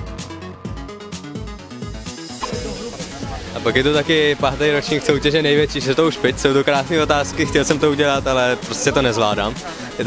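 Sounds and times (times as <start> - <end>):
electronic music with kick drum: 0.0 - 5.8
hissing sweep: 2.4 - 4.0.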